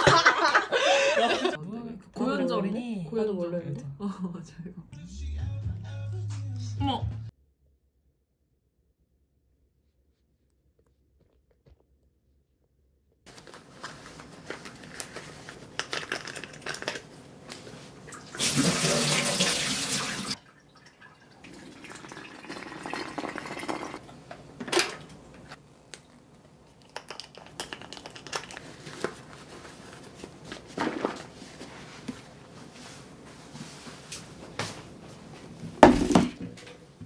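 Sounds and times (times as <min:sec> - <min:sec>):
water pouring from kettle: 0:18.1 - 0:24.0.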